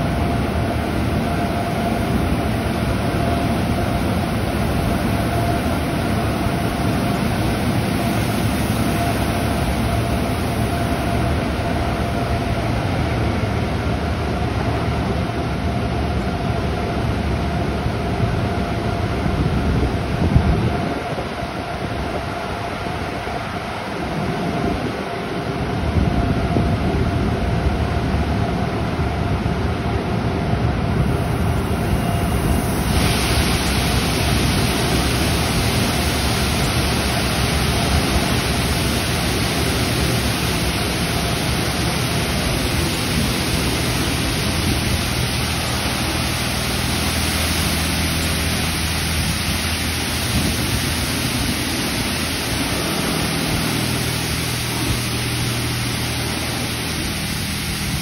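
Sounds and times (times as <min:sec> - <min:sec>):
car wash spraying water: 0:00.0 - 0:19.0, 0:30.8 - 0:58.0
low hum: 0:25.5 - 0:58.0.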